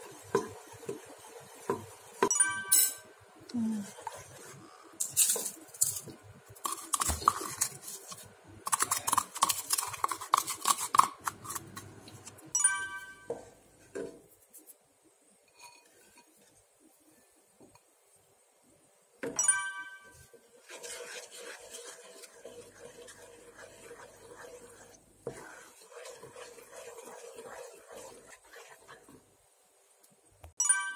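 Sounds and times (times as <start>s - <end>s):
wooden spatula scraping saucepan: 0.0s - 2.1s, 3.8s - 12.3s, 20.3s - 29.3s
glass cup clinks: 2.2s - 3.1s, 12.6s - 13.3s, 19.3s - 20.2s, 30.6s - 30.9s
stirring thick paste: 3.6s - 12.4s, 20.2s - 29.5s.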